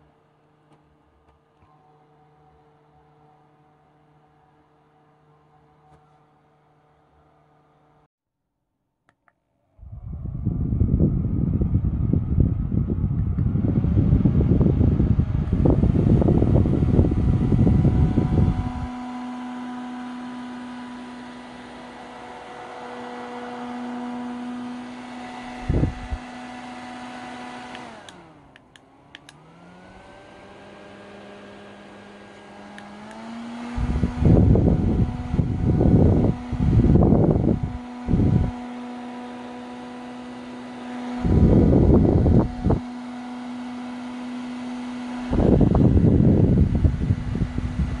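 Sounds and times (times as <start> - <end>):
handheld fan humming: 0.0 - 8.1, 9.6 - 48.0
airflow buffeting microphone: 9.7 - 19.0, 24.3 - 26.3, 33.5 - 38.6, 41.0 - 42.9, 45.0 - 48.0.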